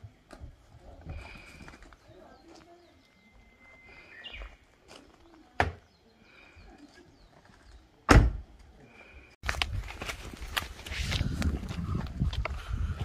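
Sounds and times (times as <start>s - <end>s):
birds chirping faintly: 0.8s - 8.1s
car door shutting with thud: 8.1s - 8.4s.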